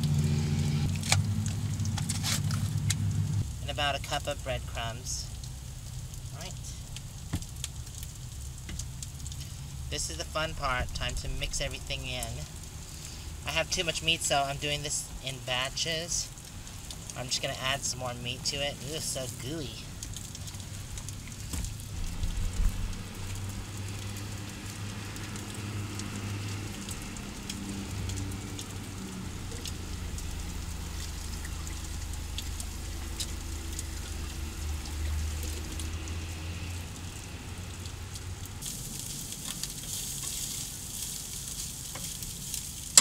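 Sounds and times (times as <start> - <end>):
low steady hum: 0.0 - 40.8
sausage and vegetables sizzling in pan: 29.8 - 43.0.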